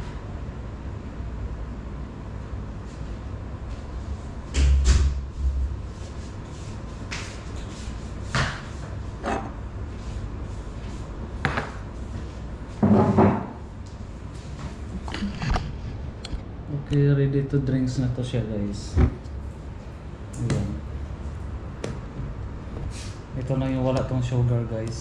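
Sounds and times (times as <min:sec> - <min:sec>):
steady low hum: 0:00.0 - 0:25.0
knocks and thumps of movement: 0:18.9 - 0:19.3.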